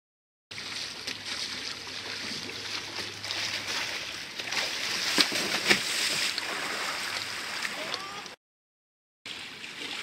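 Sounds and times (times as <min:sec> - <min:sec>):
sharp splash: 0:00.5 - 0:08.2
kayak paddle splashing: 0:00.5 - 0:08.4.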